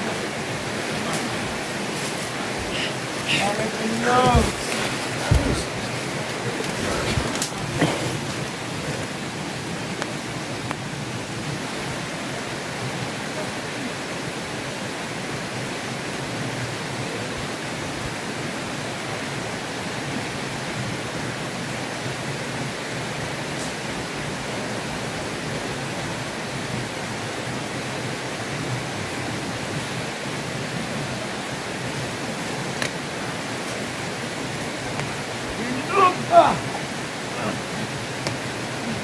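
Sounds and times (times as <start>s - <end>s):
steady rushing noise: 0.0s - 13.2s.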